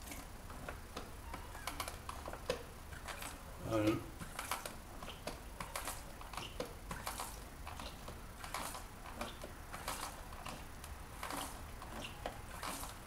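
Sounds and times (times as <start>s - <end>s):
small clicks and rustles: 0.0s - 3.5s, 4.2s - 13.0s.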